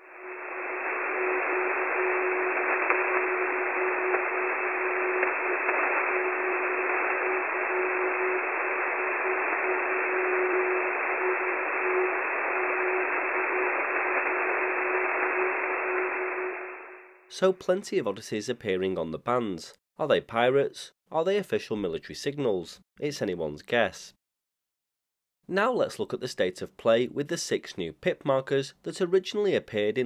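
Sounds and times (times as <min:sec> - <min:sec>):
radio static hiss: 0:00.0 - 0:17.1
steady radio tone: 0:00.0 - 0:17.2.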